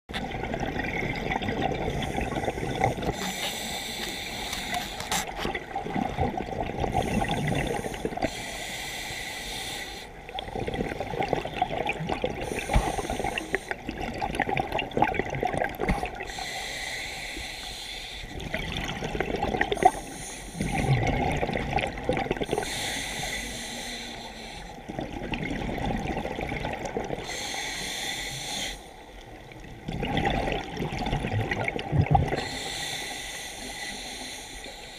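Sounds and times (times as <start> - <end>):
exhaled air bubbling: 0.1 - 9.0, 10.0 - 17.4, 18.3 - 34.9
regulator inhale hiss: 2.0 - 5.4, 7.0 - 10.2, 12.4 - 13.8, 16.2 - 18.4, 19.8 - 21.0, 22.5 - 24.8, 27.2 - 29.2, 32.4 - 34.9.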